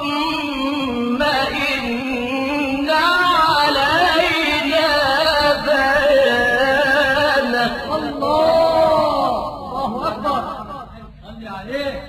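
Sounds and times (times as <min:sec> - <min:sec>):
melodic recitation by one voice: 0:00.0 - 0:12.0.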